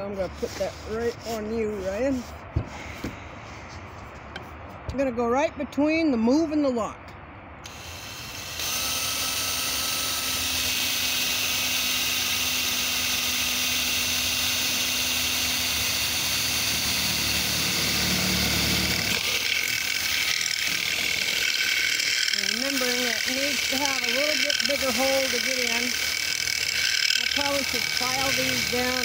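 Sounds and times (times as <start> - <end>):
drill boring through metal: 7.7 - 29.0.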